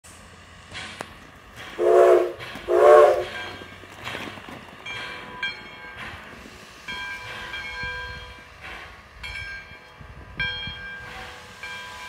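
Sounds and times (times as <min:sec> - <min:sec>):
distant steam whistle blasts: 0:01.8 - 0:03.4
locomotive bell ringing faintly: 0:01.8 - 0:12.0.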